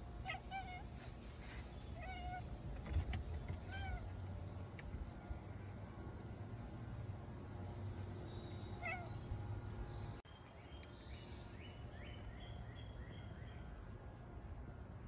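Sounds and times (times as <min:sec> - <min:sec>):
bird chirping: 0:08.2 - 0:13.8
cat meowing faintly: 0:08.8 - 0:09.2.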